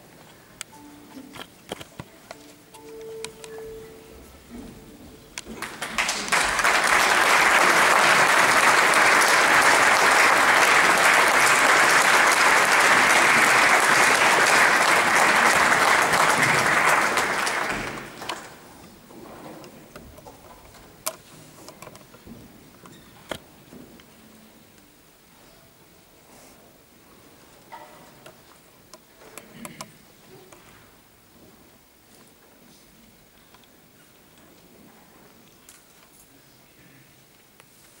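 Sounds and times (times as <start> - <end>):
audience applauding: 5.5 - 18.7.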